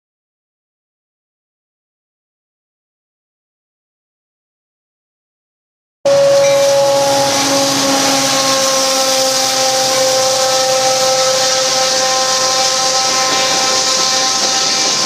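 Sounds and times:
locomotive horn chord: 6.1s - 15.0s
train rumbling on rails: 6.1s - 15.0s.

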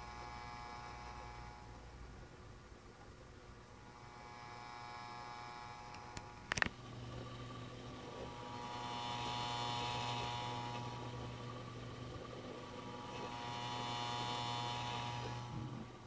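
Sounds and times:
hard drive spinning hum: 0.0s - 16.0s
hard drive clicks: 5.8s - 16.0s.

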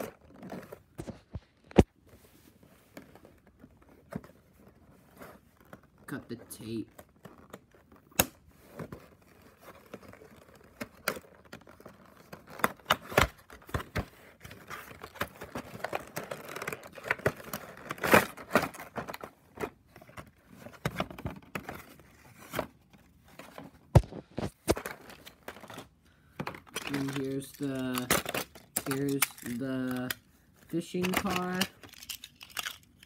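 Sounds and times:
cardboard tearing and crinkling: 8.6s - 22.8s, 26.8s - 30.2s, 30.8s - 33.0s.

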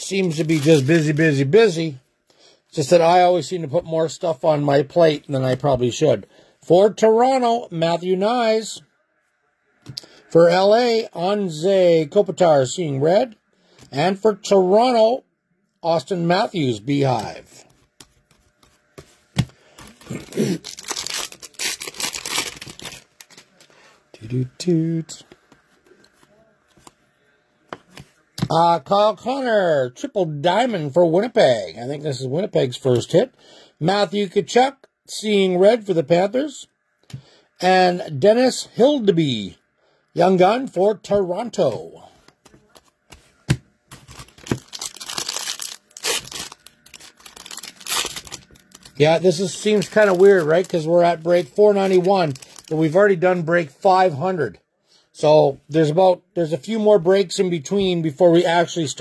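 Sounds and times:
wrapper crackling rustle: 0.0s - 1.4s, 19.8s - 24.4s, 43.9s - 53.1s.

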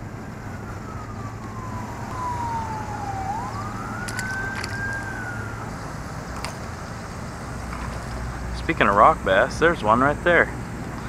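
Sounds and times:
emergency siren wailing: 0.0s - 7.4s.

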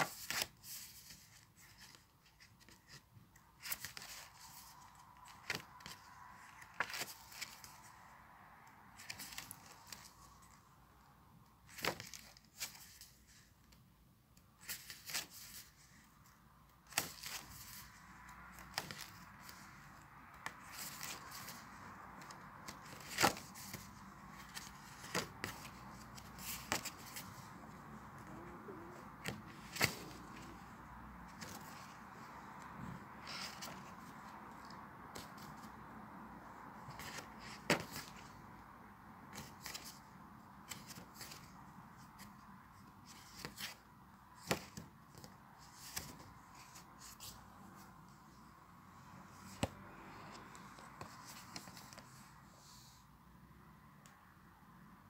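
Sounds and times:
sketchbook pages turning: 0.0s - 10.8s, 11.4s - 13.8s, 14.4s - 53.0s.

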